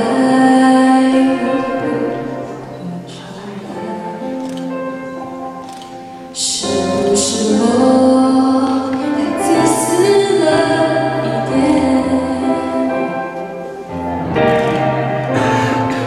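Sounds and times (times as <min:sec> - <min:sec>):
woman singing into microphone: 0:00.0 - 0:04.6, 0:06.3 - 0:13.7
backing music: 0:00.0 - 0:16.0.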